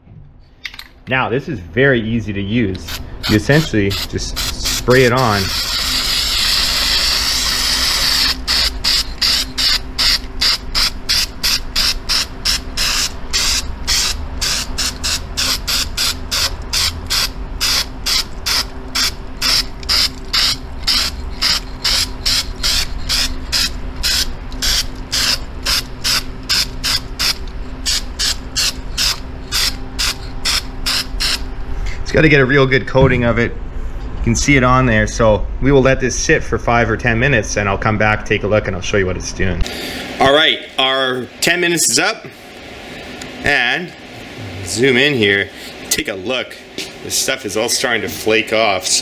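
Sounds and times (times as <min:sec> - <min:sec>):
aerosol can spraying: 0:02.9 - 0:31.4.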